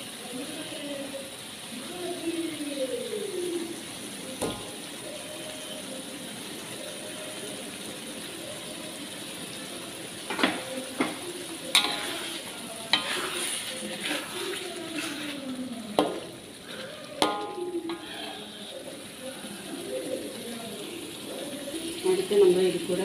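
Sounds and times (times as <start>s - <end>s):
sauce sizzling in a wok: 0.0s - 23.0s.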